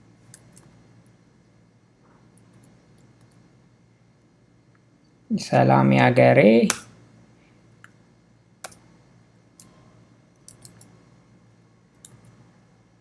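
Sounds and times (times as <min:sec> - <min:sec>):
computer keyboard keystrokes: 0:10.4 - 0:10.9.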